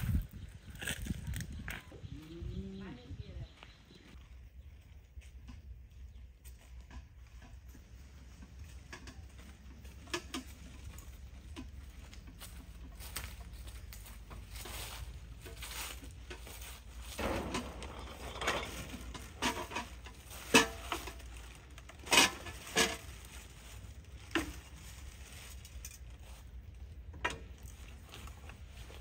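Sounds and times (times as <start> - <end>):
plastic bags rustling: 9.8 - 29.0.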